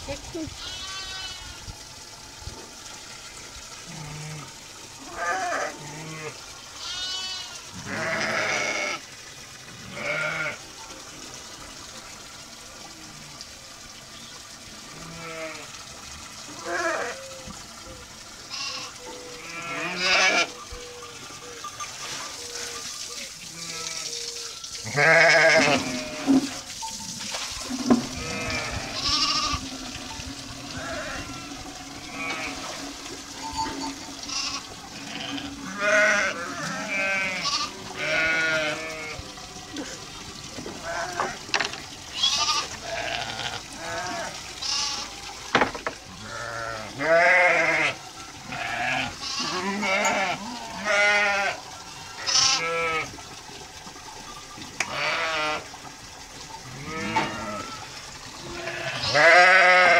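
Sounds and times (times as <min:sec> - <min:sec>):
sheep bleating: 0:05.1 - 0:09.0, 0:09.9 - 0:10.6, 0:18.5 - 0:20.5, 0:24.8 - 0:26.4, 0:28.2 - 0:29.6, 0:34.3 - 0:39.2, 0:42.2 - 0:45.1, 0:46.2 - 0:51.6, 0:52.2 - 0:53.1, 0:58.6 - 0:59.9.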